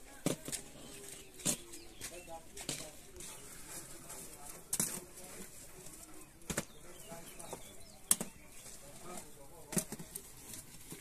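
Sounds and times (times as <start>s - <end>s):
bread loaves knocking: 0.0s - 3.2s, 6.3s - 11.0s.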